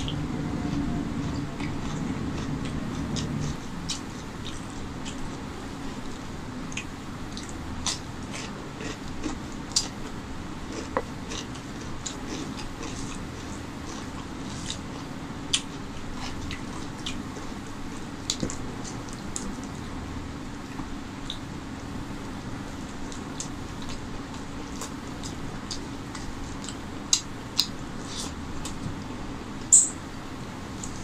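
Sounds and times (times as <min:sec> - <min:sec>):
low hum: 0:00.0 - 0:10.6
fingers mixing wet rice: 0:00.0 - 0:19.8.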